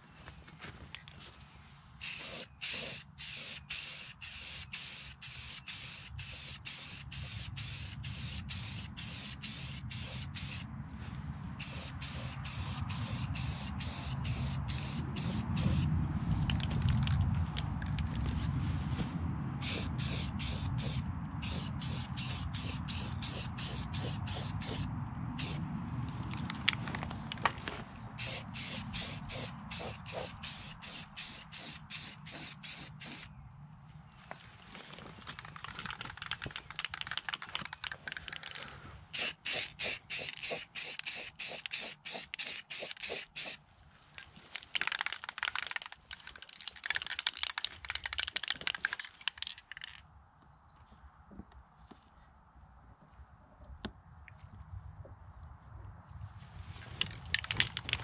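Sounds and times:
spray gun hissing in pulses: 2.0 - 10.6, 19.6 - 25.6, 28.2 - 33.2, 39.2 - 43.6.

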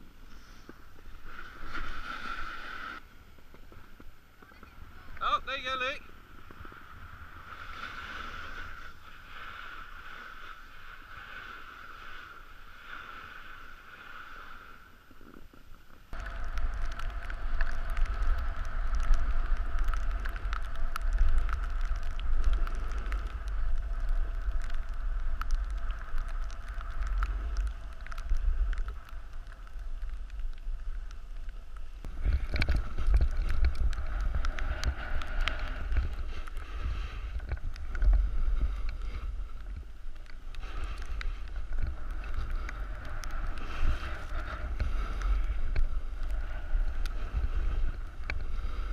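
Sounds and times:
wind buffeting microphone: 16.1 - 48.9.

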